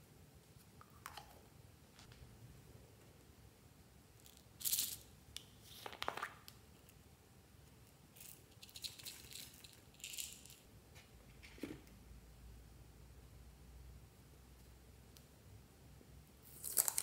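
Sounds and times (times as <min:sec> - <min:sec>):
small bits rattling in jar: 0:08.2 - 0:10.6.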